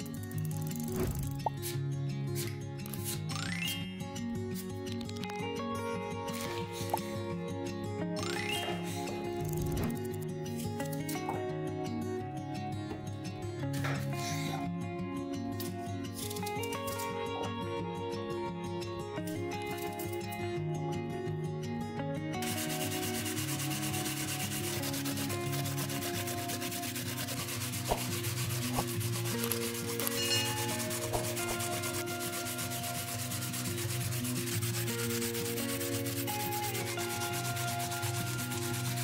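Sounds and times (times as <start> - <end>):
soft background music: 0.0 - 39.0
apples grated on box grater: 22.4 - 39.0
grater knocking on wooden board: 27.3 - 29.5.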